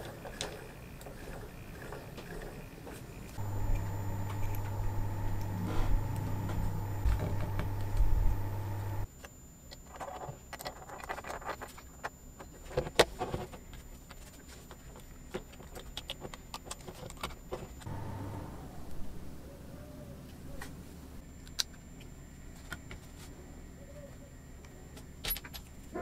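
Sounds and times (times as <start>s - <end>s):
steady hum: 3.4s - 9.1s, 17.8s - 21.2s.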